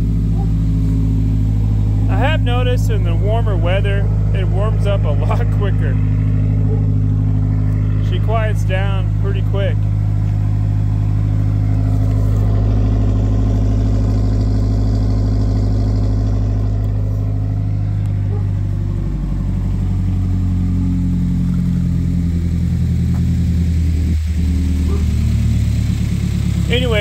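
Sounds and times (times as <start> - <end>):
car engine idling: 0.0 - 27.0.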